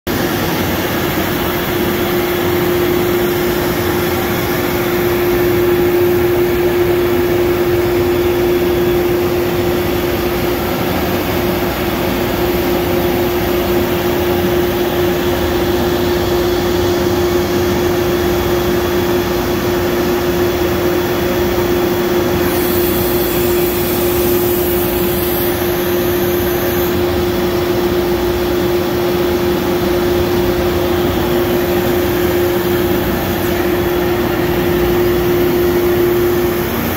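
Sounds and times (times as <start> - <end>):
steady hum: 0.1 - 36.9
faint high whine: 0.6 - 36.9
router machine rushing noise: 20.8 - 28.8, 29.4 - 36.9.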